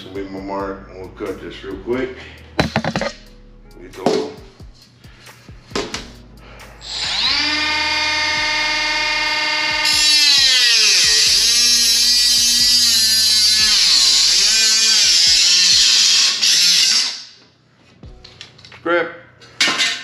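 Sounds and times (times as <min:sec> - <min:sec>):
high-pitched grinding of cutting: 0:06.8 - 0:17.3
power tool motor running: 0:06.9 - 0:17.0.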